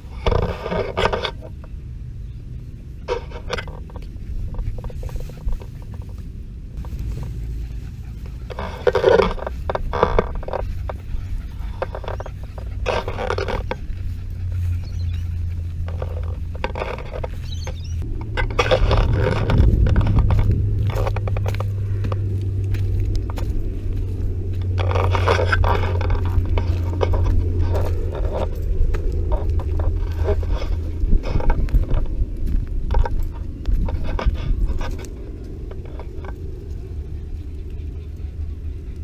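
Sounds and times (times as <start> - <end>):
grass and leaves scraping: 0.0 - 39.0
toy truck drivetrain hum: 6.8 - 32.2.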